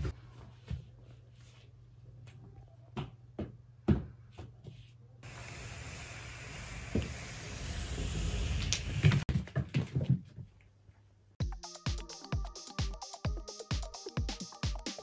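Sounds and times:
steady hiss: 5.2 - 9.2.

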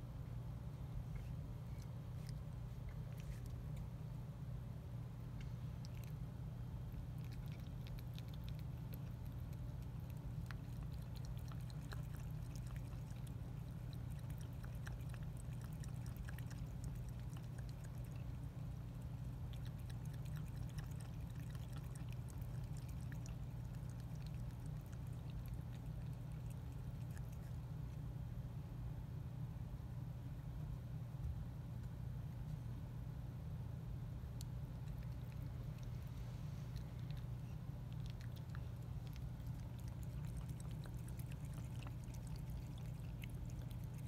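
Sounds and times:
steady low hum: 0.0 - 44.0
cat lapping water: 1.6 - 3.9, 5.4 - 28.1, 34.4 - 44.0.

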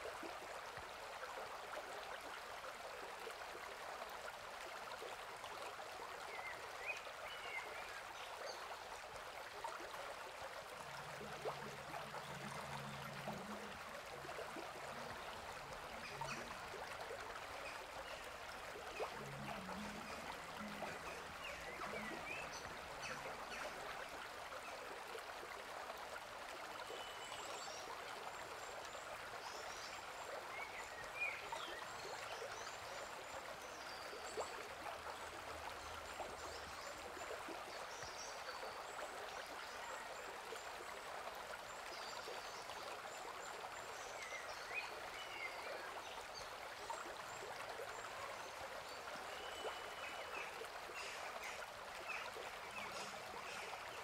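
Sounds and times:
stream rushing: 0.0 - 26.9.

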